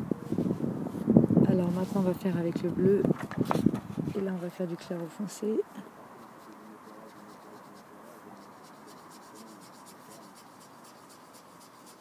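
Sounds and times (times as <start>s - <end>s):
brush scratching on paper: 6.1s - 12.0s.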